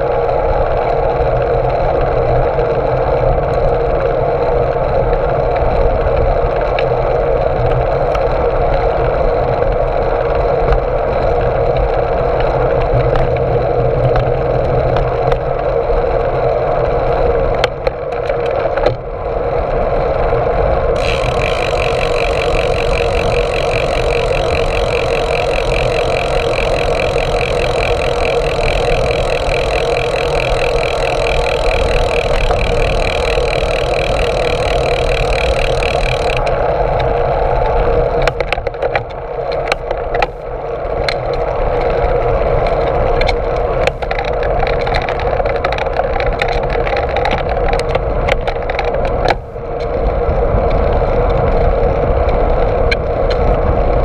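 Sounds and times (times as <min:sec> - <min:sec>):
wind and bicycle tyre noise: 0:00.0 - 0:54.0
bike clicks and rattles: 0:21.0 - 0:36.6.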